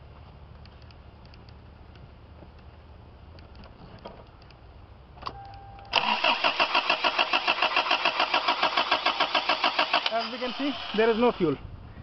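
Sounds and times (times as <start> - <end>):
starter motor cranking engine: 6.0 - 11.6.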